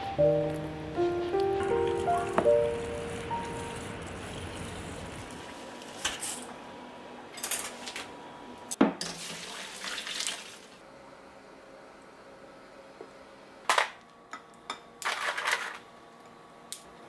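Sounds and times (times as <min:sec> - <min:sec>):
water pouring into strainer: 0:09.1 - 0:10.8.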